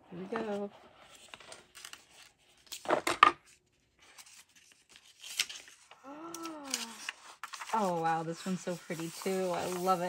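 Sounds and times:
paper rustling: 0:00.3 - 0:10.0
person saying ooh: 0:06.0 - 0:07.1.

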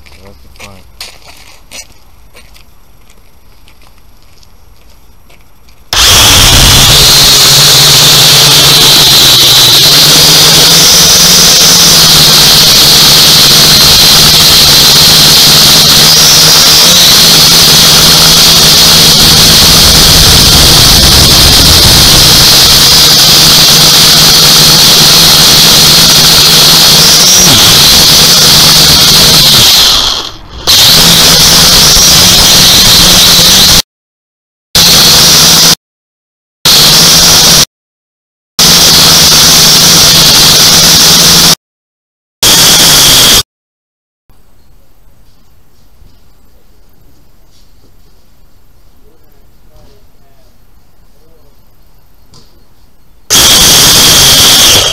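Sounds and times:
drone motors whining: 0:05.9 - 0:33.8, 0:34.8 - 0:35.8, 0:36.7 - 0:37.7, 0:38.6 - 0:41.6, 0:42.4 - 0:43.4, 0:53.3 - 0:54.9.

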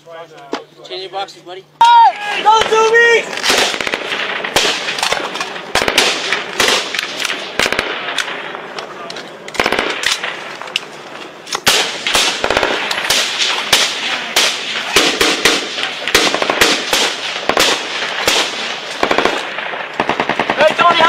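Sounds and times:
single rifle shots: 0:02.4 - 0:08.8, 0:09.5 - 0:10.7, 0:11.5 - 0:21.0
automatic gunfire bursts: 0:02.6 - 0:08.5, 0:09.6 - 0:10.4, 0:11.6 - 0:21.0.

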